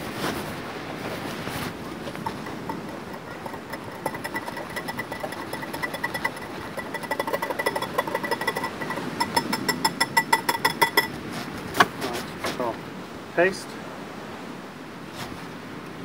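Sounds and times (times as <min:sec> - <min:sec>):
kitchen tool striking hard surface: 0:02.1 - 0:11.2.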